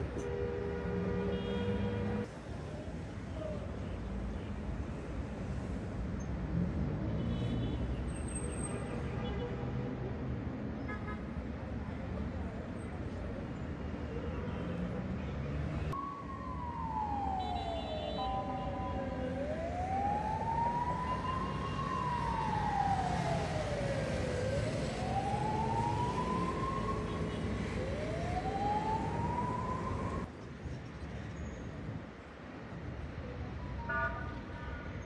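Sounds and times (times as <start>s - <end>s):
street traffic rumble: 0.0s - 35.0s
ambulance siren wailing: 15.9s - 30.3s.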